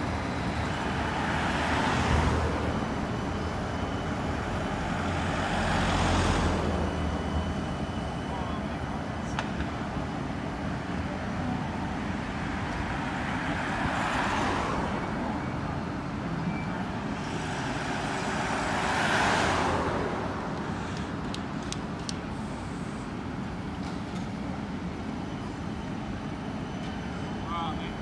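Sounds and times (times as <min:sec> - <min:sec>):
cars passing close by: 0:00.0 - 0:03.2, 0:04.4 - 0:07.2, 0:12.5 - 0:15.6, 0:16.9 - 0:21.3.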